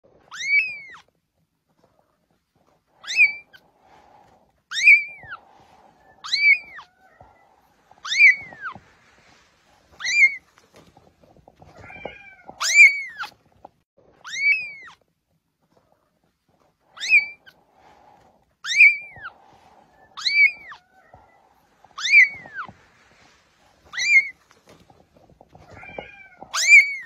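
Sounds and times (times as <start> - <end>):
kitten mewing: 3.0 - 3.6, 4.7 - 8.8, 11.6 - 13.4, 16.9 - 17.7, 18.6 - 22.8, 25.5 - 27.0.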